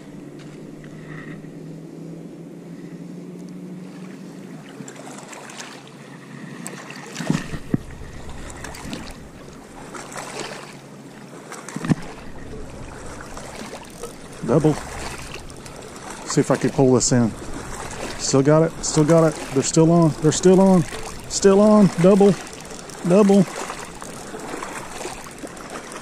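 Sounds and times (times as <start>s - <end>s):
low steady hum: 0.0s - 4.9s, 7.4s - 11.2s, 11.9s - 26.0s
fishing rod handling noise: 7.2s - 10.6s, 11.8s - 26.0s.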